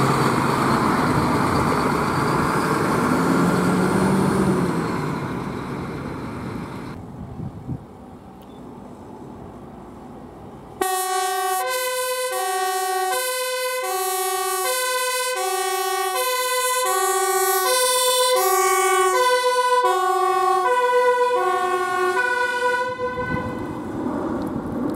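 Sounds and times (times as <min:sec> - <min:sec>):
fire truck engine: 0:00.0 - 0:07.0, 0:08.7 - 0:24.9
two-tone siren: 0:10.8 - 0:23.8.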